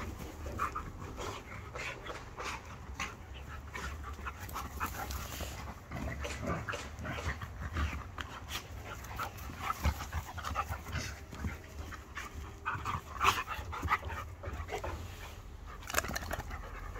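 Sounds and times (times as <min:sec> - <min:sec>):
dogs panting: 0:00.0 - 0:16.9.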